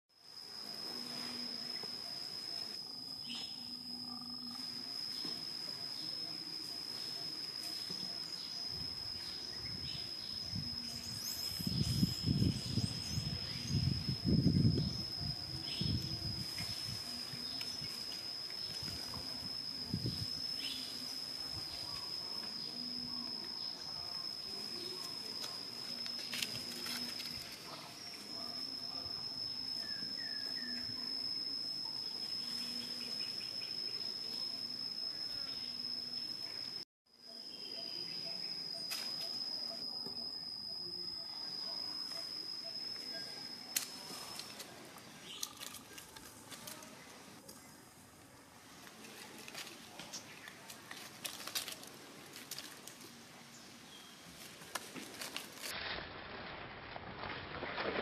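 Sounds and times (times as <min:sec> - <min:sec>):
outdoor ambience: 0:00.1 - 0:58.0
faint chirps: 0:00.2 - 0:55.7
insect whining: 0:00.2 - 0:55.8
high-pitched tone: 0:00.7 - 0:47.5
dry leaves crackling: 0:45.3 - 0:47.1, 0:49.1 - 0:53.1, 0:54.3 - 0:56.3.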